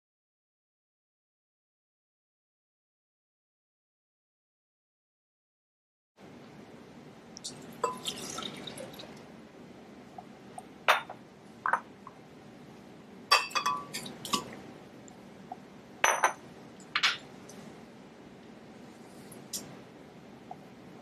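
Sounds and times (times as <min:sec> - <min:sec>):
juice pouring into glass jar: 0:07.5 - 0:09.3
glass clinks and knocks: 0:13.3 - 0:14.0, 0:16.0 - 0:16.4, 0:17.0 - 0:17.2.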